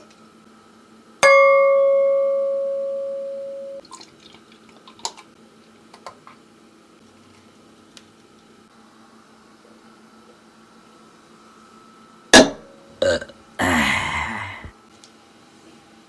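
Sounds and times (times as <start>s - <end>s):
bright ringing ding: 1.2s - 3.8s
beer pouring into a glass: 3.8s - 5.1s.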